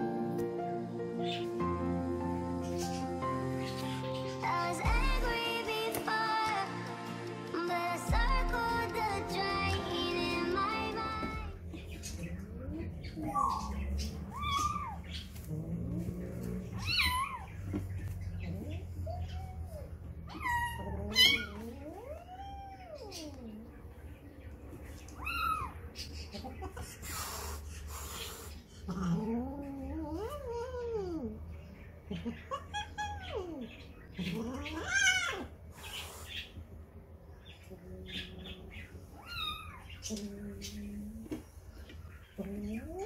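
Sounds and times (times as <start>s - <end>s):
cats meowing: 11.1s - 23.8s, 25.0s - 26.9s, 32.0s - 36.4s, 37.6s - 41.5s
cat hissing: 26.7s - 29.3s, 34.2s - 36.6s.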